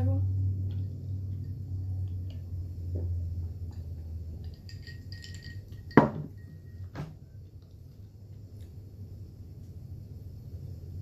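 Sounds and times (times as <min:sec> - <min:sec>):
ice clinking in a glass: 0:03.8 - 0:07.0
glass knocking on wooden board: 0:05.9 - 0:07.1.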